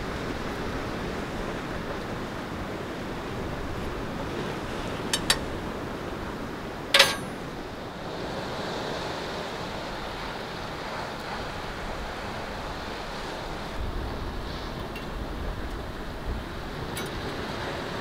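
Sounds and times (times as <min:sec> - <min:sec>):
sea surf: 0:00.0 - 0:18.0
wind: 0:00.0 - 0:18.0
metallic clink of cookware: 0:07.0 - 0:07.4, 0:17.0 - 0:17.2.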